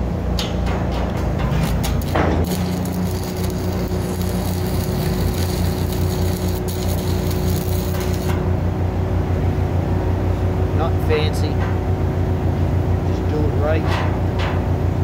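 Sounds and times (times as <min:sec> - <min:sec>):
pulsing low rumble: 0:01.0 - 0:08.7
welding arc crackling: 0:01.5 - 0:08.5.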